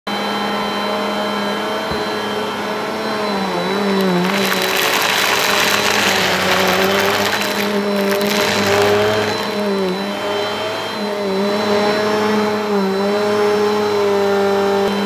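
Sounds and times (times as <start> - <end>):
vacuum cleaner running on carpet: 0.1 - 15.0
rubber bands clattering in vacuum: 3.8 - 10.1.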